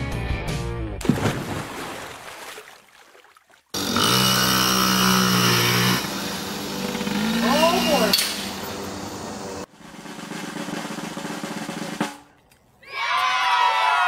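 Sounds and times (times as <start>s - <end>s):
pool water splashing: 1.0s - 3.8s
small motorbike engine running: 3.8s - 9.7s.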